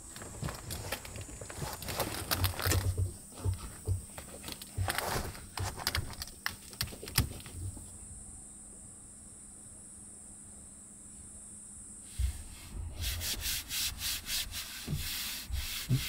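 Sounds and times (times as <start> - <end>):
fabric rustling: 0.0 - 7.8
hands thumping on panels: 2.2 - 7.8, 14.8 - 16.0.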